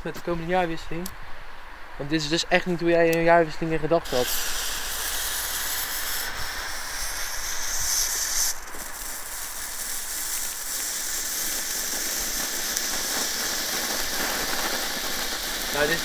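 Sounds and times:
firework fountain hissing: 3.9 - 16.0.

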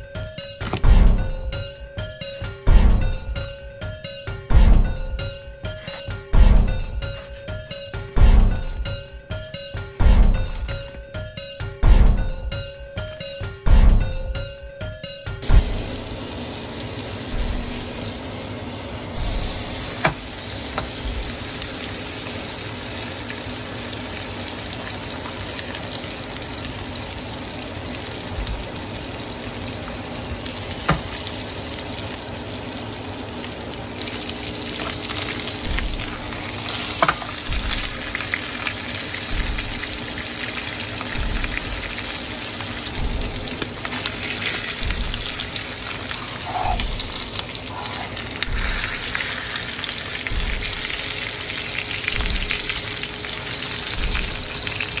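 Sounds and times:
steak sizzling in a frying pan: 15.6 - 55.0.

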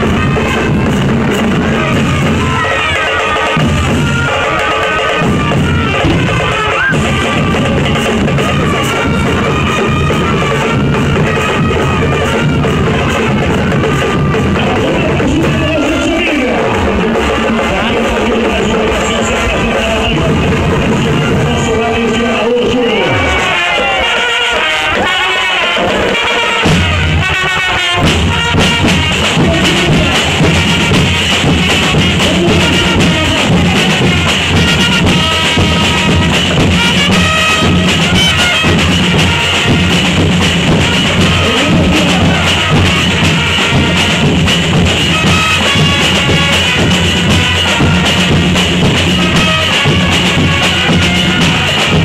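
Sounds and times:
heavy drums and percussion: 0.0 - 52.0
marching band playing: 0.0 - 52.0
deep bass beat: 28.0 - 52.0.

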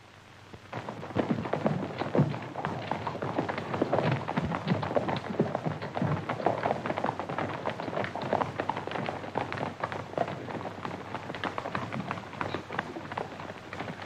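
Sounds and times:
horses galloping on dirt: 0.6 - 14.0.

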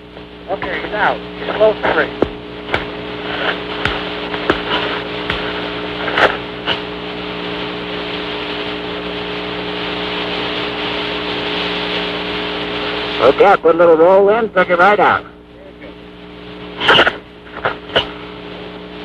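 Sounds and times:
radio channel hiss: 0.0 - 19.0
steady low hum: 0.0 - 19.0
radio clicks: 0.1 - 7.8, 16.5 - 18.3.

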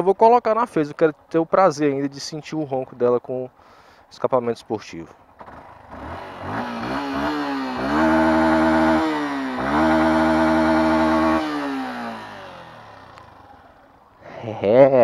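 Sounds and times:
motorcycle engine revving: 5.3 - 14.2.

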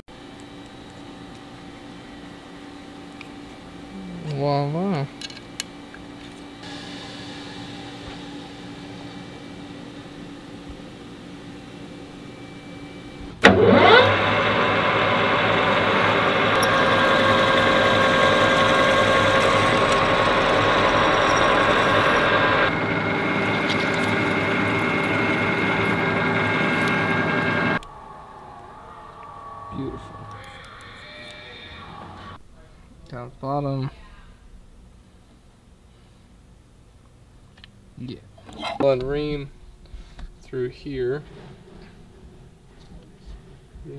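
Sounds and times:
lathe motor whine: 6.1 - 32.4
drill bit boring into metal: 13.6 - 27.8.

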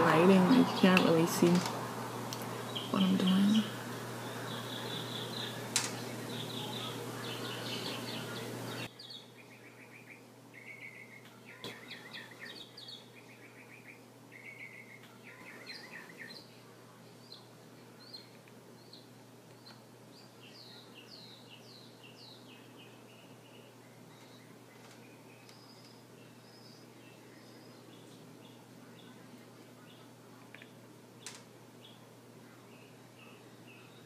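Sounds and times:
faint steady hum: 0.0 - 34.0
small bird chirping: 2.6 - 16.5, 17.2 - 29.2.

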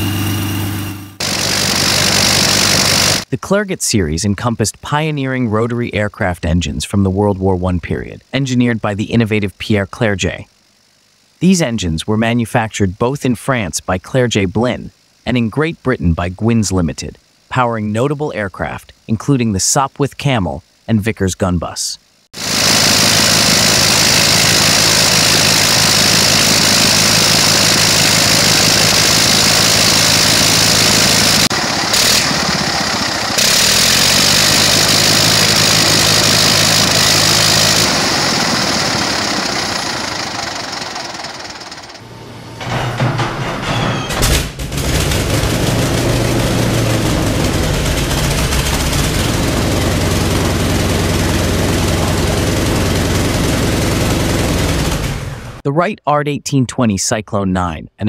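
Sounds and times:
rotary aircraft engine running: 0.0 - 3.3, 22.4 - 55.6
radial engine coughing and running: 0.0 - 6.4, 22.3 - 55.6.

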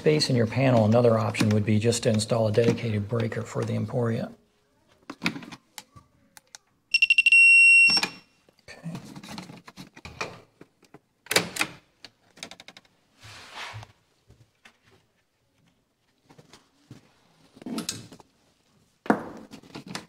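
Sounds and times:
electrical tester beeping: 6.9 - 8.3.

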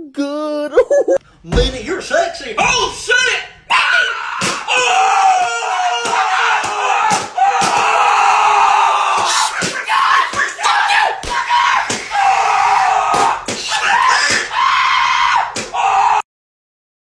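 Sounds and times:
person screaming: 3.7 - 16.2
sharp slaps or bangs: 4.4 - 4.7, 5.3 - 8.0, 9.1 - 10.6, 11.2 - 12.2, 13.1 - 14.5, 15.5 - 15.8.

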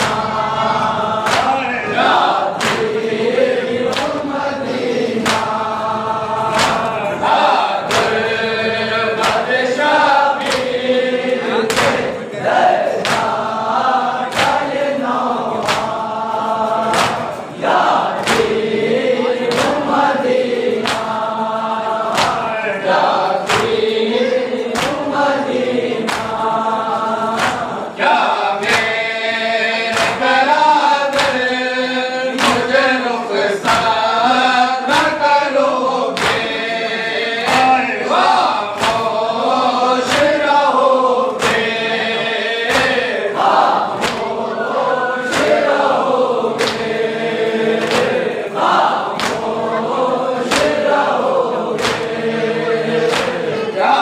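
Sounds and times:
hands slapping chests: 0.0 - 0.3, 1.1 - 8.4, 9.2 - 10.9, 11.5 - 27.8, 28.4 - 29.2, 29.8 - 31.7, 32.3 - 32.9, 33.6 - 35.4, 36.0 - 54.0
men chanting in unison: 0.0 - 54.0.

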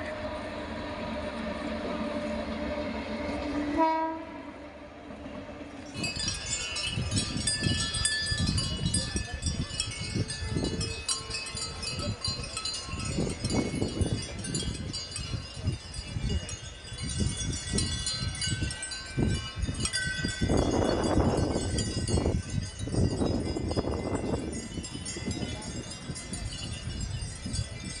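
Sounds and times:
wind buffeting microphone: 5.3 - 28.0
high chiming tones: 5.8 - 28.0.

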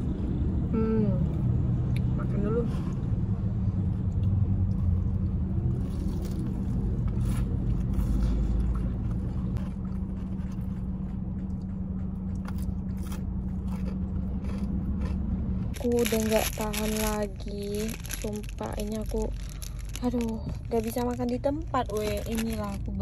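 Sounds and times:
car engine hum inside cabin: 0.0 - 23.0
chewing: 5.8 - 17.0.

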